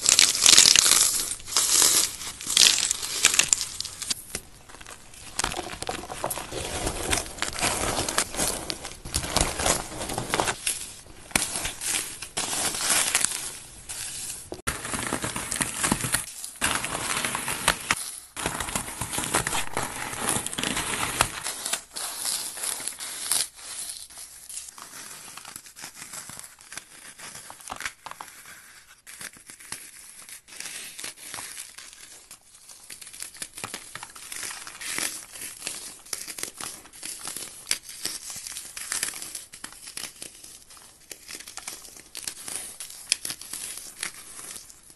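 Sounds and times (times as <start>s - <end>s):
floral foam crunching by hand: 0.0s - 23.5s.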